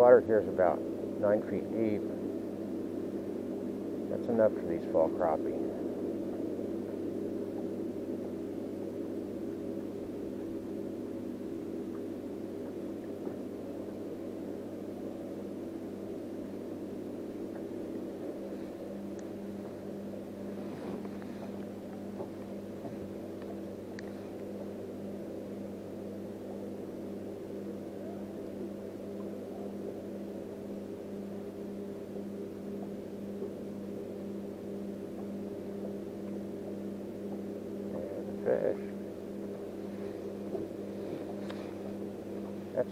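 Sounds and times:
electric boat motor humming: 0.0 - 42.9.

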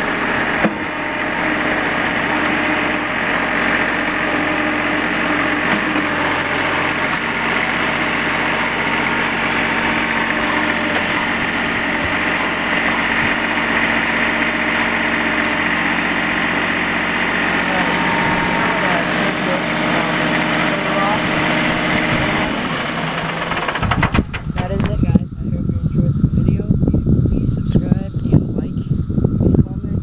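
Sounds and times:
diesel engine running: 0.0 - 30.0.

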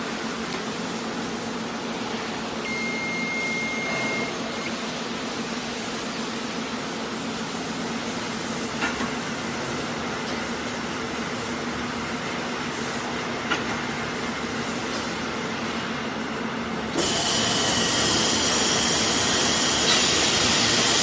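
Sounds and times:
machine humming: 0.3 - 5.7.

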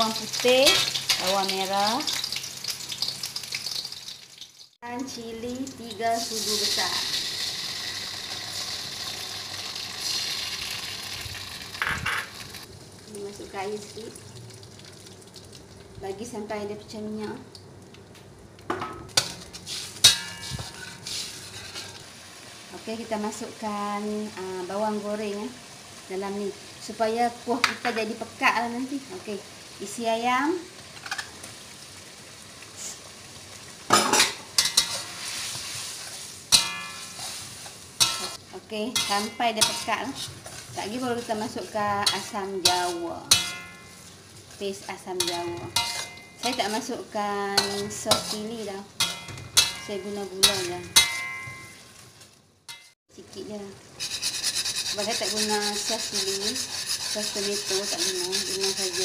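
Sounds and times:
chilli paste sizzling in oil: 0.0 - 17.5, 19.1 - 59.0
metal spatula scraping a wok: 19.2 - 22.0, 34.2 - 52.0, 52.7 - 53.0, 54.0 - 59.0
sharp ringing clang: 50.9 - 51.8.

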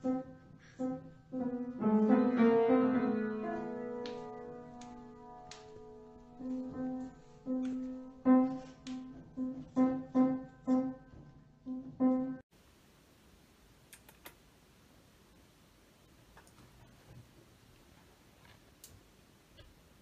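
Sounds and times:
piano single notes: 0.0 - 12.4
room hiss: 12.5 - 20.0.

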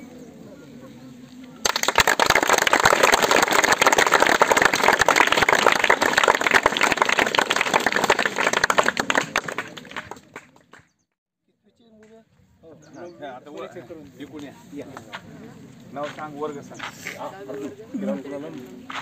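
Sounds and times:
crowd clapping: 1.6 - 10.9.

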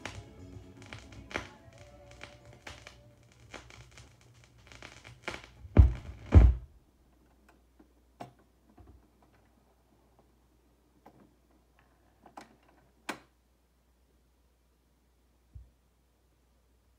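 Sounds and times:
stylus crackling in groove: 0.0 - 6.2
song on a record: 0.0 - 6.6
tonearm thumps: 5.8 - 6.7.

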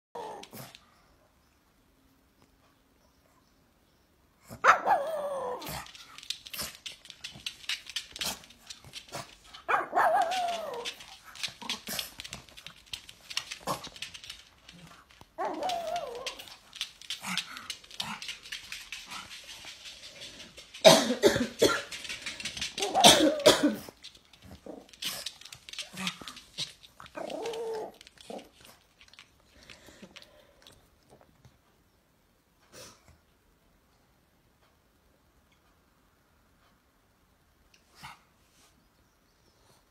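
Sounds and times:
dog barking: 4.5 - 5.2, 9.7 - 10.8
person coughing hard: 20.8 - 21.9, 23.0 - 23.9.

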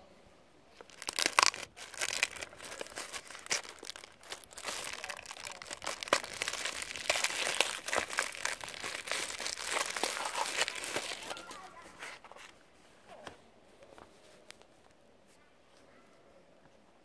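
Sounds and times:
plastic bag crinkling: 0.8 - 12.5.

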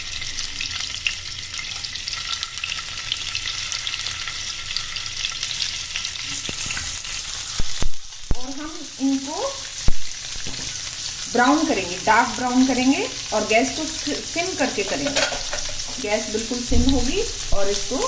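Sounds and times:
paneer sizzling in oil: 0.0 - 18.0.

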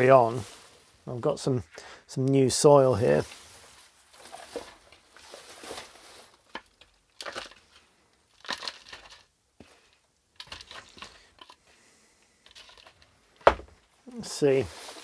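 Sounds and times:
soil scrunching and rustling: 0.0 - 1.7, 2.4 - 11.6, 14.1 - 15.0.

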